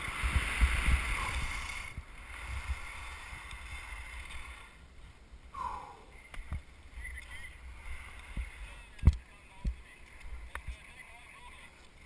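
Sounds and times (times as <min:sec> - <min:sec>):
wind buffeting microphone: 0:00.0 - 0:04.7
skis hissing over snow: 0:00.0 - 0:04.8.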